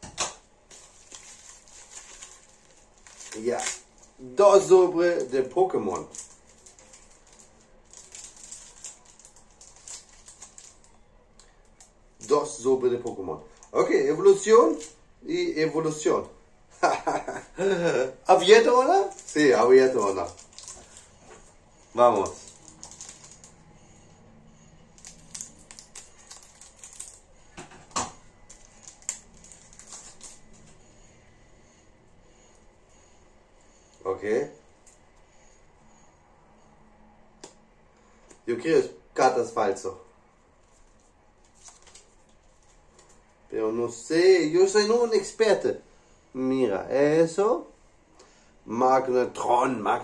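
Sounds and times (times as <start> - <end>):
foil wrappers crinkling: 0.6 - 12.7, 17.1 - 23.6, 24.8 - 27.7, 28.4 - 30.8, 40.6 - 43.3.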